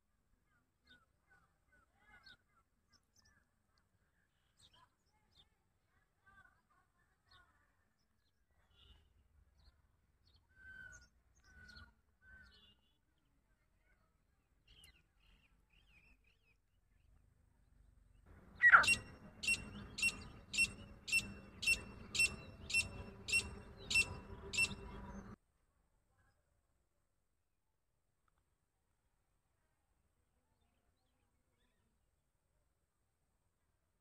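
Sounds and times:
faint bird chirps: 18.4s - 25.4s
francolin calling: 18.4s - 25.4s.

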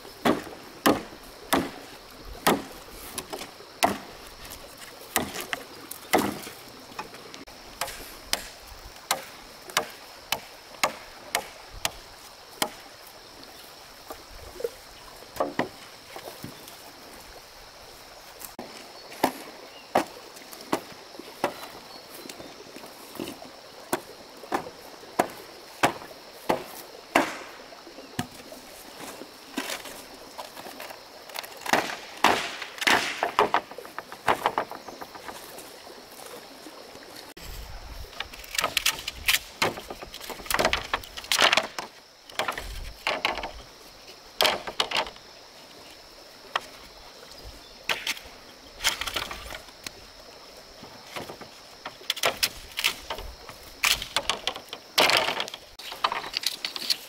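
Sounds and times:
tool chopping wood: 0.2s - 1.8s, 2.4s - 4.1s, 5.1s - 6.5s, 7.8s - 12.0s, 23.9s - 27.6s, 31.6s - 34.7s.

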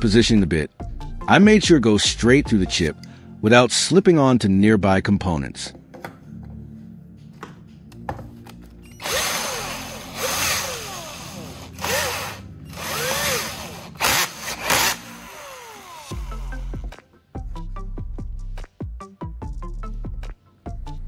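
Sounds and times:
cordless drill bursts: 9.0s - 16.8s.

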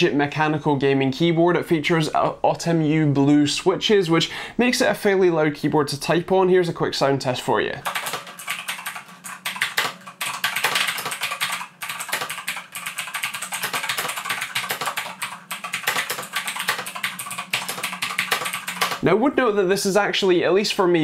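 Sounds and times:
mechanical keyboard typing: 7.8s - 19.0s.

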